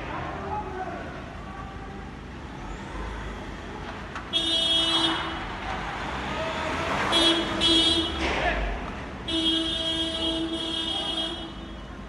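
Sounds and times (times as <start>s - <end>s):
street noise: 0.0s - 12.0s
vehicle horn blast: 9.3s - 11.8s.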